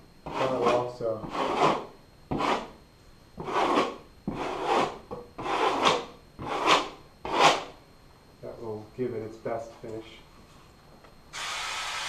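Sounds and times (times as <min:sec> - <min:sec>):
drywall knife scraping: 0:00.2 - 0:02.8, 0:03.4 - 0:07.8.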